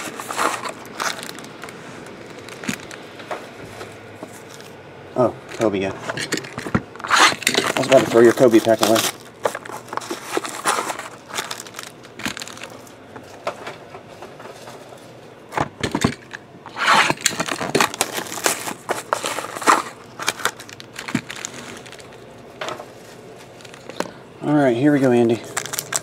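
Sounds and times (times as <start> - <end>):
cardboard scraping: 0.0 - 2.9, 7.0 - 12.6, 16.7 - 22.0
plastic wrap crinkling: 0.0 - 3.2, 7.0 - 13.4, 16.9 - 24.2, 24.9 - 26.0.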